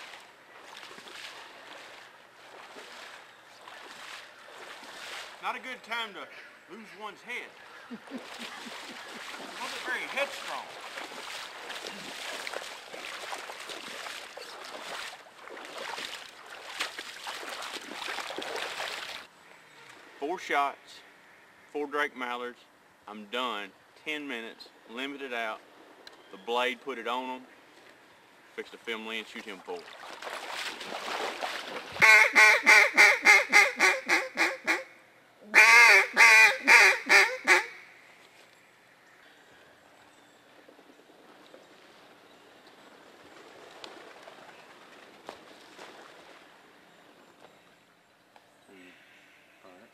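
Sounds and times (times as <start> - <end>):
wading steps sloshing through water: 0.0 - 19.3, 27.6 - 32.0, 39.9 - 47.9
duck call quacks: 32.0 - 34.9, 35.5 - 37.8.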